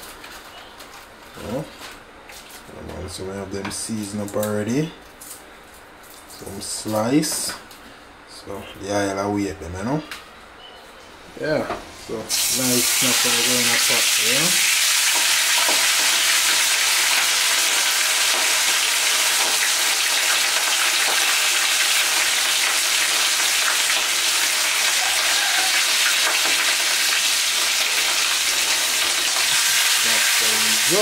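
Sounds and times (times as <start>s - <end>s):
fish sizzling in hot oil: 12.3s - 31.0s.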